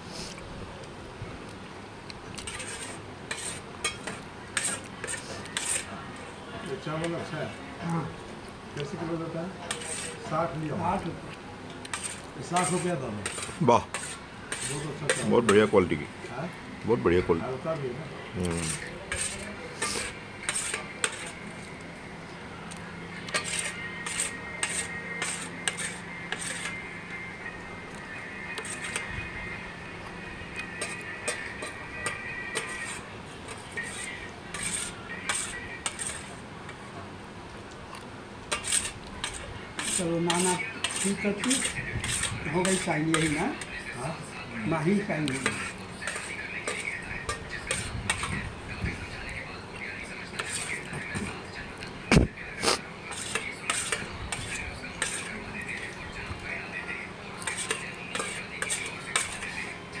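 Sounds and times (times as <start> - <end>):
spoon scraping metal plate: 2.4 - 5.9, 9.7 - 10.3, 11.9 - 15.7, 18.5 - 21.4, 23.2 - 26.9, 28.4 - 29.1, 30.6 - 36.4, 38.5 - 43.9, 45.2 - 48.4, 50.3 - 50.9, 52.6 - 55.9, 57.4 - 59.8.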